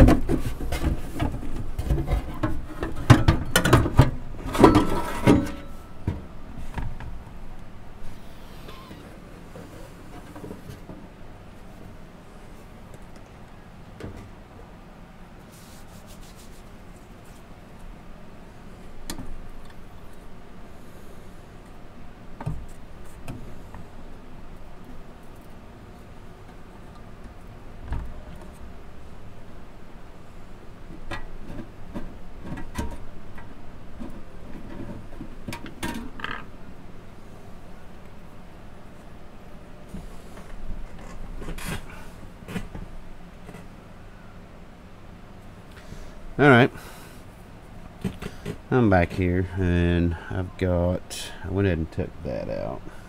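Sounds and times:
metal chassis sliding: 2.0s - 5.8s, 8.1s - 10.4s.

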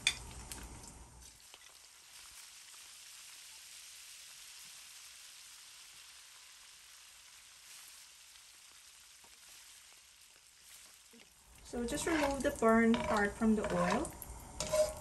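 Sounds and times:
shrimp sizzling in oil: 1.2s - 15.0s.

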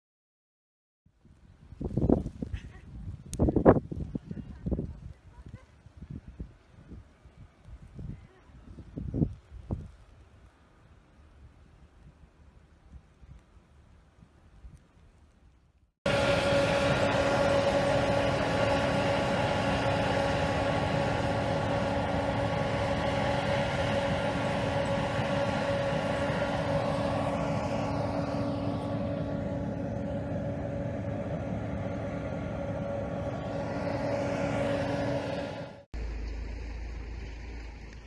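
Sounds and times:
snowplow engine and blower drone: 16.1s - 38.0s.

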